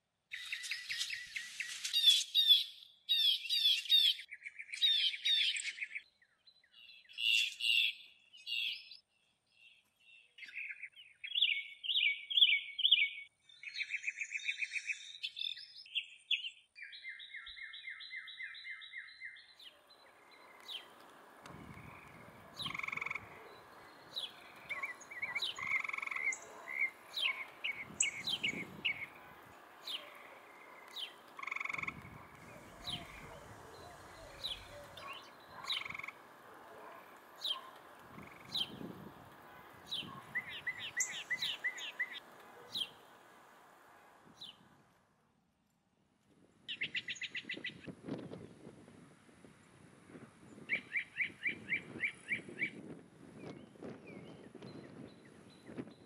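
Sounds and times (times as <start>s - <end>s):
birds chirping and trilling: 0.3s - 44.8s, 46.7s - 47.9s, 50.5s - 52.8s
steady background hiss: 19.6s - 45.2s.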